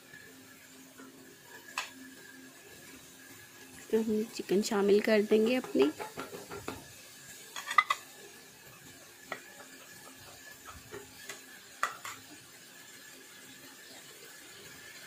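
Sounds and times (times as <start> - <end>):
wooden spoon scraping and tapping: 5.4 - 6.8.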